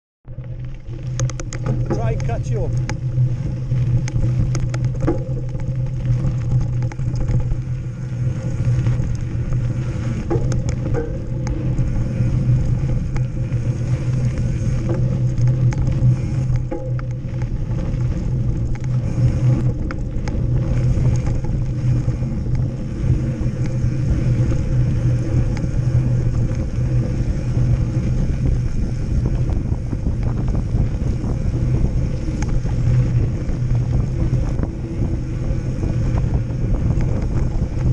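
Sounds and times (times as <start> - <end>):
low hum: 0.2 - 37.9
wind and tyre roll: 0.2 - 37.9
bike clicks and knocks: 0.3 - 37.9.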